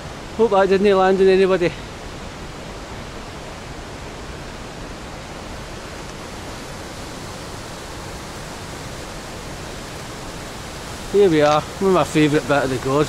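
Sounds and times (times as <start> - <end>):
white water rushing: 0.0 - 13.0.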